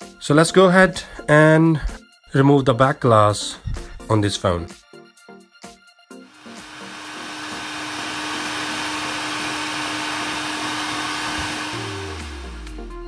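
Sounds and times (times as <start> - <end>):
music: 0.0 - 13.0
hot air gun blowing: 6.3 - 12.7.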